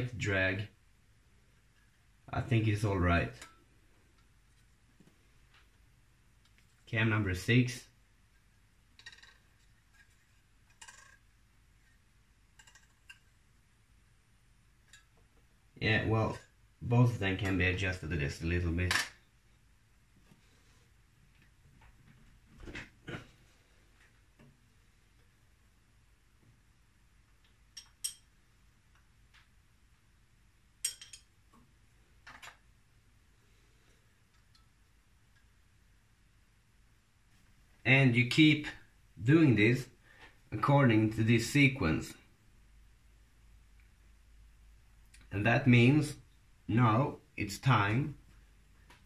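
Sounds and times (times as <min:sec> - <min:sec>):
faint metallic clicks and scrapes: 0:08.3 - 0:13.4
spanners clinking on metal: 0:30.8 - 0:31.3.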